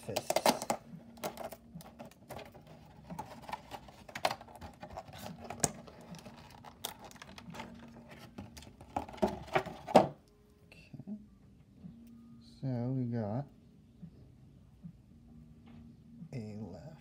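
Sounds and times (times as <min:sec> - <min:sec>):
plastic packaging crackling: 0:00.1 - 0:10.1.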